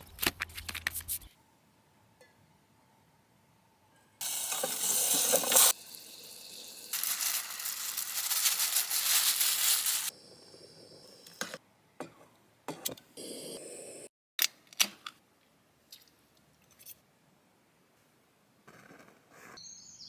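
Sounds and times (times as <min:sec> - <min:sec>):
food sizzling in a pot: 0:04.2 - 0:10.2.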